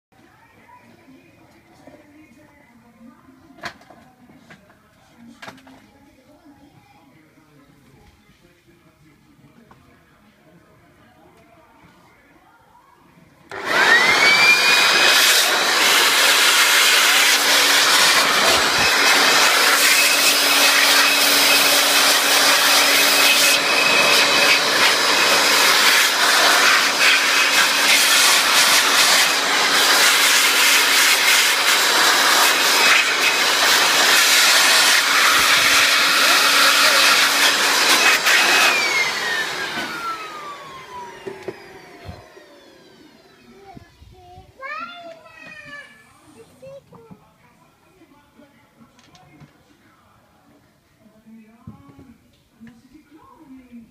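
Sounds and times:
vacuum cleaner running: 13.5s - 43.8s.

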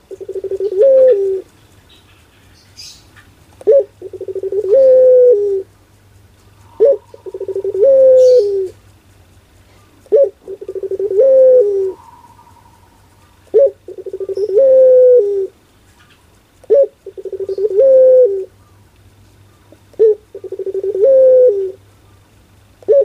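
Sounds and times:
dove cooing: 0.0s - 1.6s, 3.6s - 5.8s, 6.4s - 8.9s, 9.7s - 15.6s, 16.6s - 18.8s, 19.7s - 21.9s, 22.8s - 23.0s.

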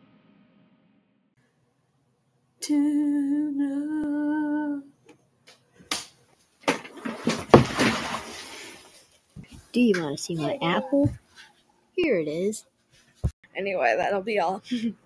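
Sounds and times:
person humming: 2.6s - 4.9s
clattering crash of falling chair: 6.6s - 8.7s.

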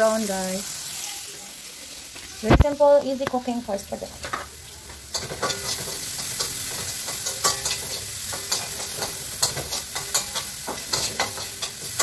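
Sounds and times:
meat sizzling in a frying pan: 0.0s - 12.0s
spatula scraping a pan: 5.1s - 12.0s.

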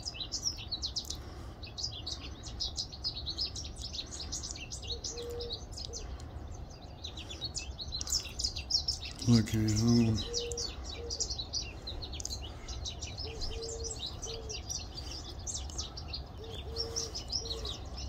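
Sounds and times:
small birds chirping: 0.0s - 18.0s
low cooing call: 4.8s - 6.2s, 9.7s - 11.5s, 12.6s - 18.0s.

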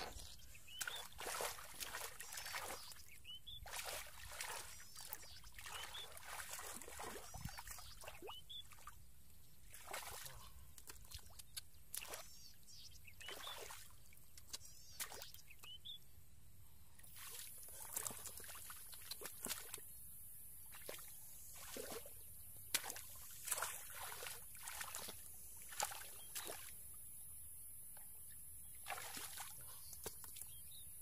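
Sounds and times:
hands sloshing in muddy water: 0.0s - 9.0s, 9.6s - 12.4s, 17.0s - 19.8s, 20.7s - 26.8s, 28.8s - 30.6s.

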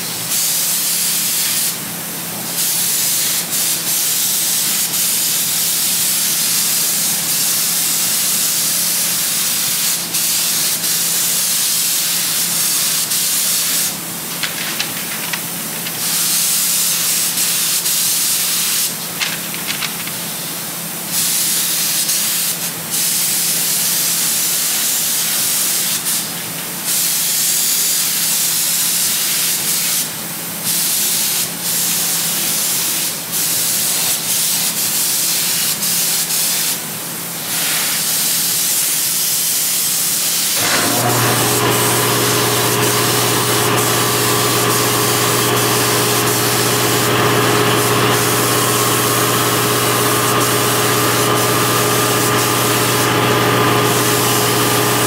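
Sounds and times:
paint sprayer hissing: 0.1s - 1.8s, 2.5s - 26.4s, 37.4s - 55.0s.

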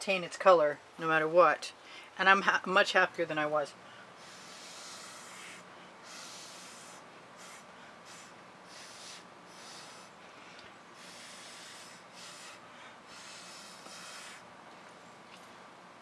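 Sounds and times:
breathy puffs of air: 1.8s - 2.2s, 3.8s - 14.5s.

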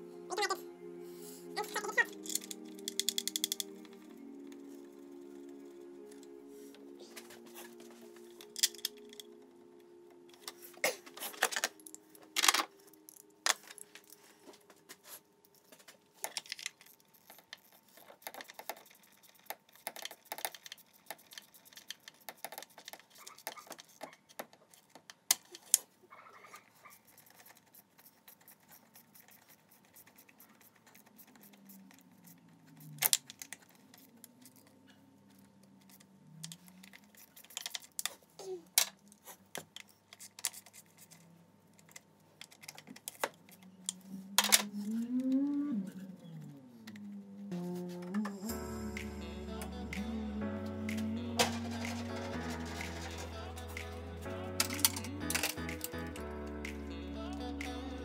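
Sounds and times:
hoses and clips clicking: 2.1s - 4.6s, 54.6s - 57.9s.

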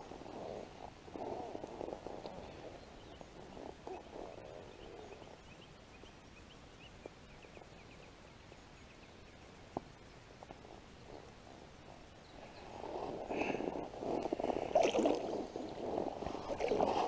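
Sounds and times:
bird chirping: 2.4s - 10.2s
water sloshing: 14.2s - 17.0s.

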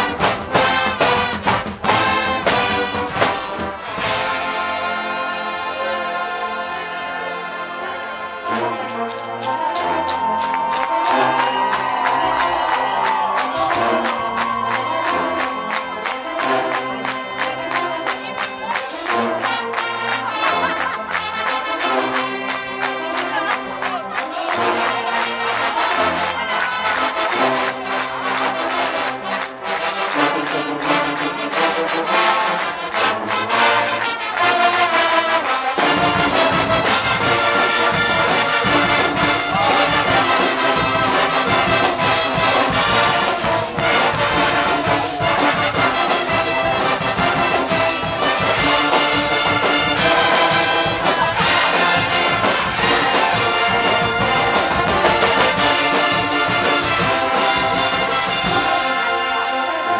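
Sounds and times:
drums and crashing cymbals: 0.0s - 4.9s, 20.8s - 59.8s
brass band playing: 0.0s - 59.9s.

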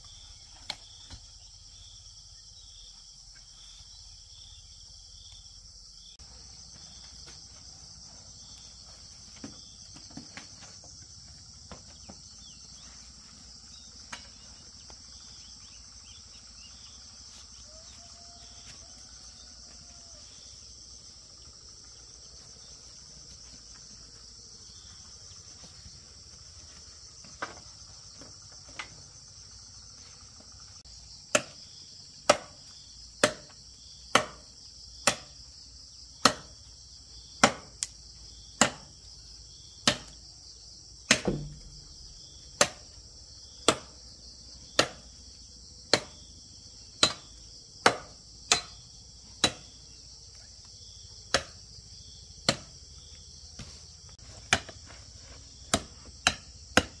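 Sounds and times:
high insect chorus: 0.0s - 57.0s
sharp knocks: 41.1s - 42.9s.

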